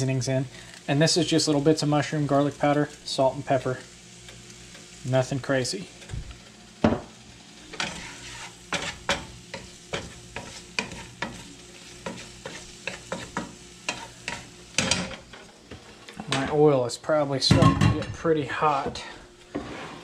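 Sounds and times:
butter and oil sizzling: 0:00.0 - 0:20.0
wooden spatula scraping a pan: 0:07.7 - 0:16.4, 0:18.9 - 0:20.0.

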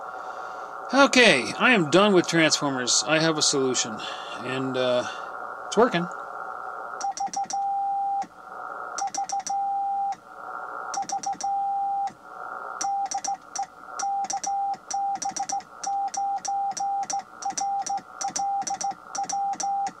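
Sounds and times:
receiver hiss: 0:00.0 - 0:20.0
morse code beeping tone: 0:07.0 - 0:08.3, 0:09.0 - 0:10.2, 0:11.0 - 0:12.1, 0:12.8 - 0:20.0.

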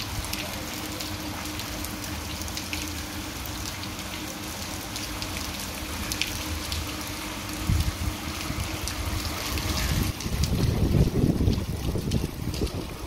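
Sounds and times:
rain on cobbled street: 0:00.0 - 0:13.0
wind buffeting microphone: 0:07.5 - 0:13.0.

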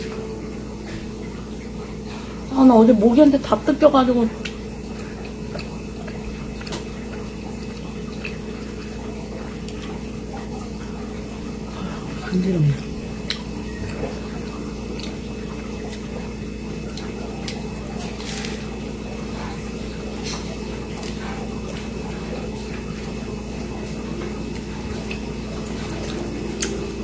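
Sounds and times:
low hum: 0:00.0 - 0:18.0, 0:19.0 - 0:27.0
chewing mouth sounds: 0:04.4 - 0:10.8, 0:12.7 - 0:23.2.

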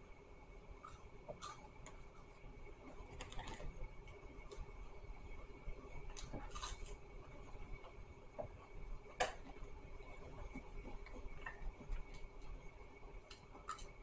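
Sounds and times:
chewing clicks and crackles: 0:00.8 - 0:04.7, 0:06.0 - 0:07.1, 0:13.2 - 0:14.0.

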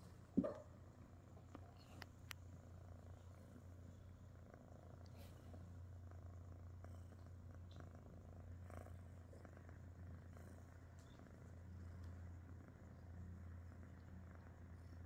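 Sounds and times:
kitten purring: 0:00.0 - 0:15.0.

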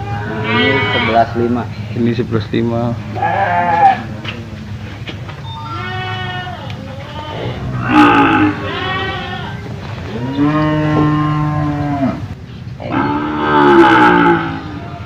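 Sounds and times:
cattle mooing: 0:00.0 - 0:01.5, 0:05.7 - 0:15.0.

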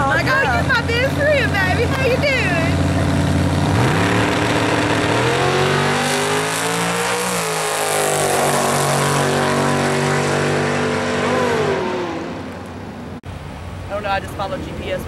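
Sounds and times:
drag car accelerating: 0:00.0 - 0:13.2.

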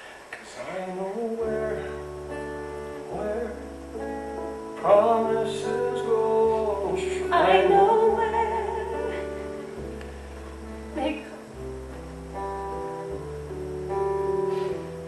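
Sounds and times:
bass guitar: 0:01.3 - 0:15.0
electric guitar: 0:01.4 - 0:15.0
person singing long notes: 0:04.8 - 0:09.9.

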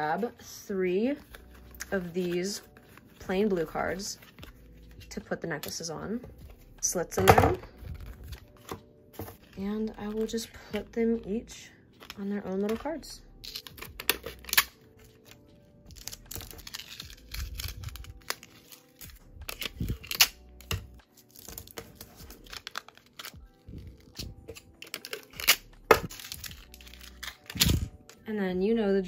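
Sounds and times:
paper card rustling: 0:01.1 - 0:05.0.

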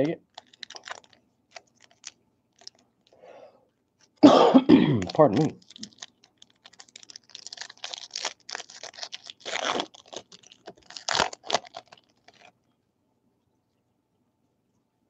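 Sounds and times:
foil wrapper crinkling: 0:00.0 - 0:02.8, 0:04.9 - 0:12.6.

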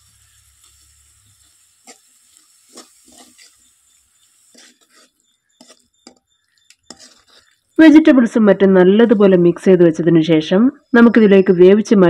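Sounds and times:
metal spatula scraping a wok: 0:00.0 - 0:07.8.

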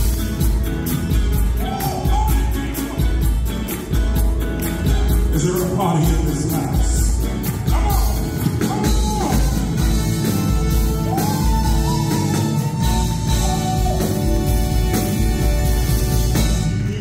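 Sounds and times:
live band music: 0:00.0 - 0:17.0
man singing: 0:01.4 - 0:03.6, 0:04.8 - 0:10.0, 0:16.5 - 0:17.0
audience clapping along: 0:01.6 - 0:05.8.

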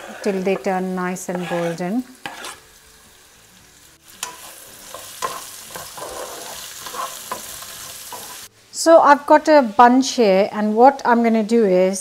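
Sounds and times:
spatula scraping pan: 0:00.0 - 0:02.6, 0:04.2 - 0:08.5
onions sizzling in oil: 0:00.0 - 0:11.2.

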